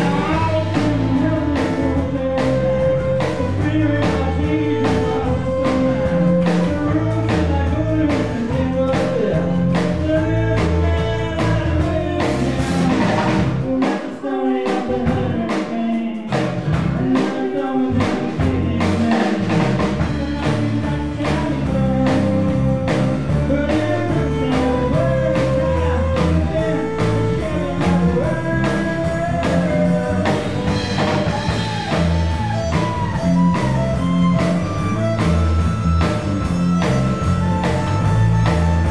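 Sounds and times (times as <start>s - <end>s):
bass: 0.0s - 38.9s
drum kit with steady beat: 0.0s - 38.9s
violin: 29.9s - 38.9s.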